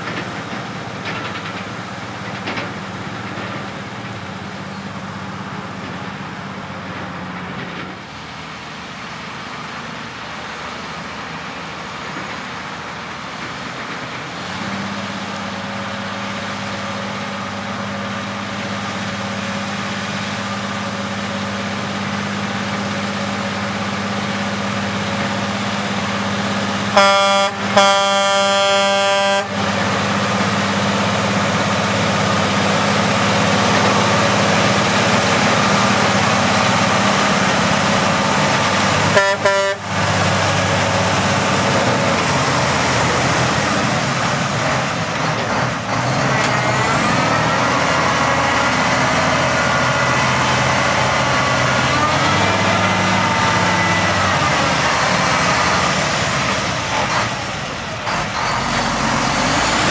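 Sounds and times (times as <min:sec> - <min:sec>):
heavy truck engine running: 0:00.0 - 0:59.9
truck horn: 0:26.9 - 0:29.8, 0:39.0 - 0:40.1.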